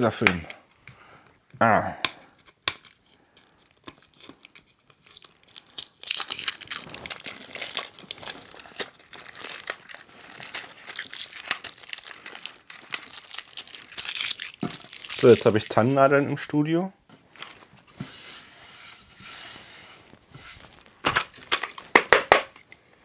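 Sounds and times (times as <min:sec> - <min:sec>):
tape peeling and crackling: 0:02.5 - 0:16.2, 0:20.0 - 0:22.5.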